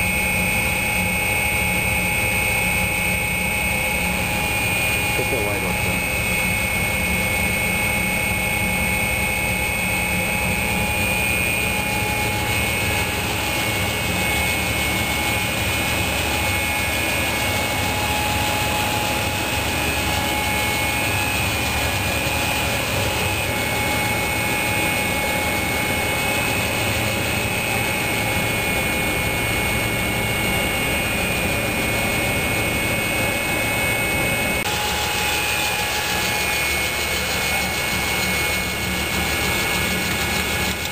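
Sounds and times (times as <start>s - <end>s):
machinery drone: 0.0s - 40.9s.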